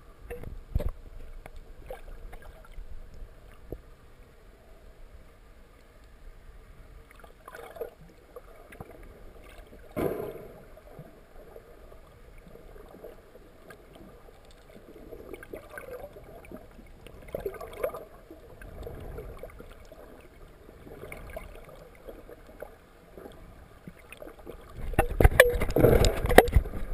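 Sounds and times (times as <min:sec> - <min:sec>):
rush of bubbles and splashing: 0:07.1 - 0:08.0, 0:14.6 - 0:22.4
sharp thump: 0:10.0 - 0:10.6
underwater knocks: 0:24.8 - 0:26.9.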